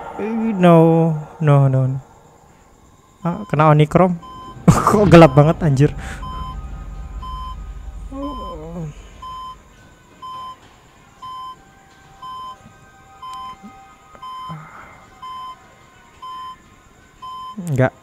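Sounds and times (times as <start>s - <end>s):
patient monitor beeping: 3.2s - 9.6s, 11.2s - 11.6s, 12.2s - 12.6s, 13.2s - 14.6s, 15.2s - 15.6s, 16.2s - 16.6s, 17.2s - 17.7s.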